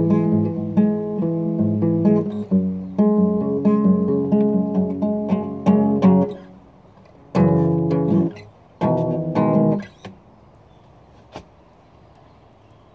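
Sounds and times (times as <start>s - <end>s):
acoustic guitar strummed chords: 0.0s - 6.6s, 7.3s - 10.2s.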